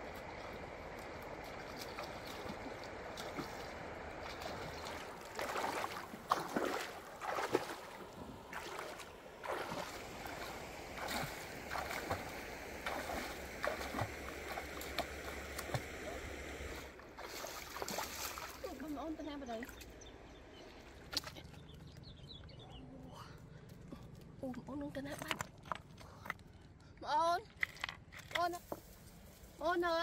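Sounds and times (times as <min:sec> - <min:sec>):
stream rushing: 0:00.0 - 0:18.8
feet wading and splashing in river: 0:00.0 - 0:21.8.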